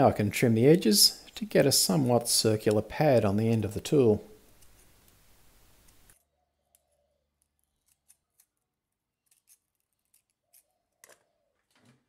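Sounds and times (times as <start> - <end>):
scissors snipping: 5.8 - 8.6, 9.2 - 11.2.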